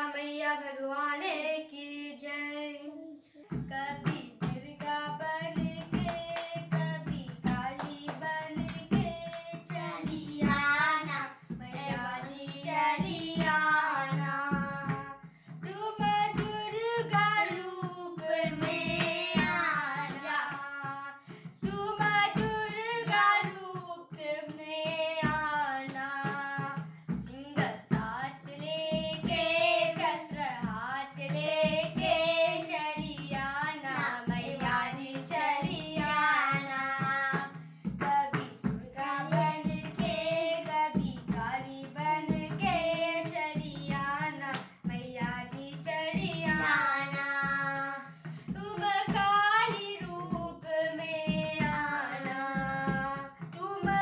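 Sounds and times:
boy singing: 0.0s - 54.0s
tabla rhythm: 0.0s - 54.0s.

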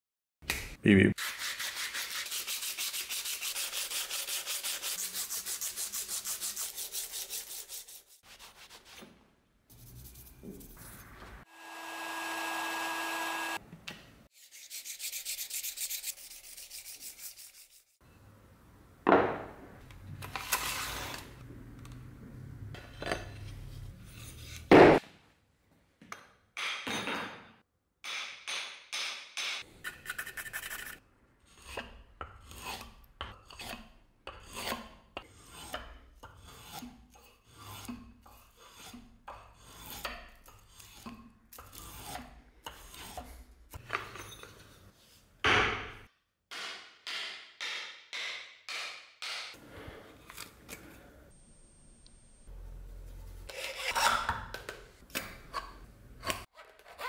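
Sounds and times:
file rasping on steel: 29.8s - 43.4s, 53.5s - 54.1s.

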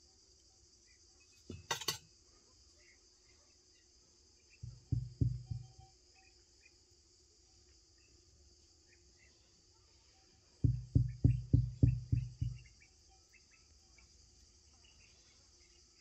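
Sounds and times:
crickets chirring: 0.0s - 16.0s
plate knocking on table: 1.5s - 2.0s, 4.6s - 5.8s, 10.6s - 12.6s.

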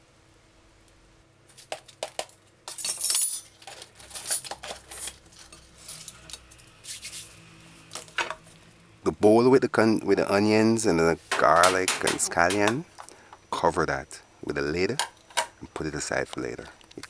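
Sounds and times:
metal measuring spoons clinking: 2.7s - 6.4s
scrape and rustle: 3.4s - 8.6s.

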